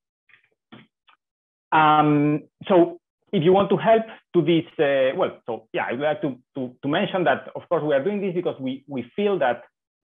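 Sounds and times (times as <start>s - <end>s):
man speaking: 1.7s - 9.6s.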